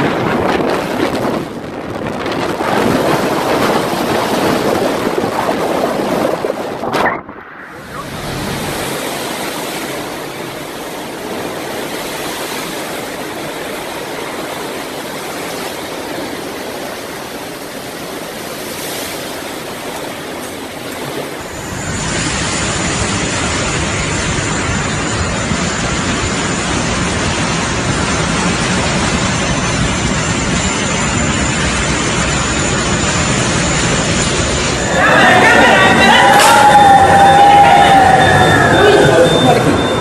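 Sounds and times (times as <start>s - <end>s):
wind rumble on microphone: 0.0s - 10.2s, 20.9s - 40.0s
hurricane wind: 0.0s - 40.0s
rushing floodwater: 0.0s - 40.0s.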